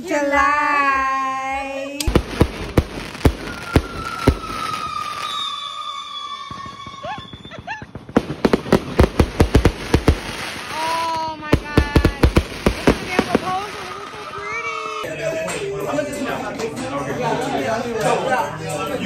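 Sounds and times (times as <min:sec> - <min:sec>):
fireworks bangs: 0:02.0 - 0:15.0
firecrackers crackling: 0:02.0 - 0:15.1
firework whistle sliding down: 0:03.2 - 0:07.9.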